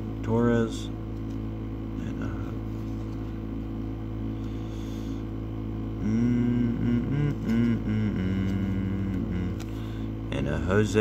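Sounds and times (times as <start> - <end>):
low background hum: 0.0 - 11.0
person humming wordlessly: 5.9 - 10.1.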